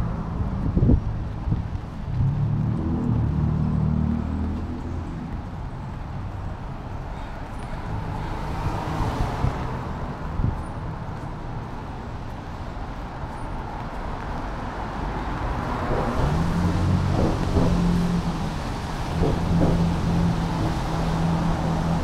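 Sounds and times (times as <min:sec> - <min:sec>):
vehicle engine approaching: 0:00.0 - 0:06.8, 0:14.9 - 0:22.0
traffic on wet street: 0:00.0 - 0:22.0.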